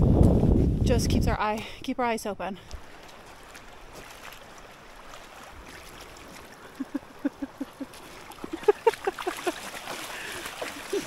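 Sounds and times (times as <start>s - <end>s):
shallow river running: 2.5s - 11.0s.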